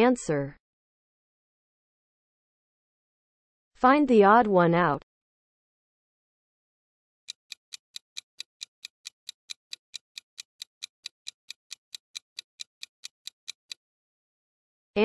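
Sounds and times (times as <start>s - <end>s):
clock-like timer ticking: 7.3s - 13.8s.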